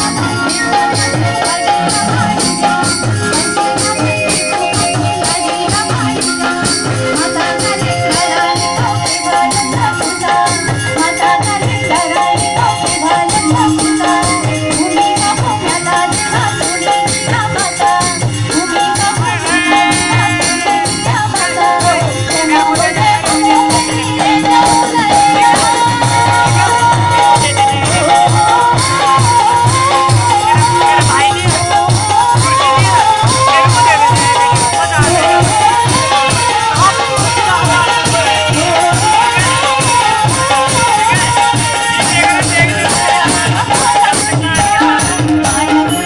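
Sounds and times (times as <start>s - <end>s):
folk dance music: 0.0s - 46.0s.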